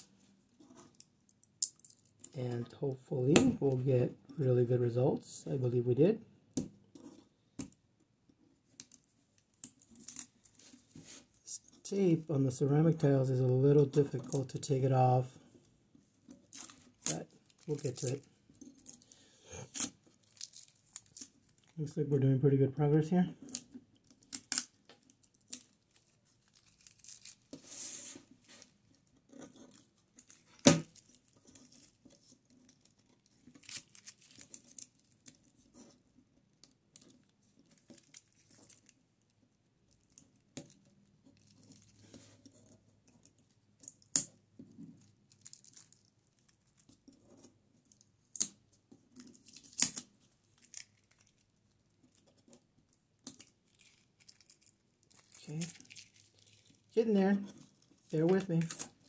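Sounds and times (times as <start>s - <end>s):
tape and paper tearing: 19.6s - 21.4s, 25.4s - 28.6s, 33.4s - 35.2s.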